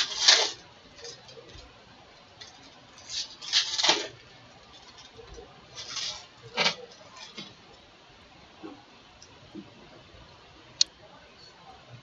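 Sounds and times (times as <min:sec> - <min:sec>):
foil wrappers crinkling and tearing: 0:00.0 - 0:01.6, 0:02.4 - 0:07.5.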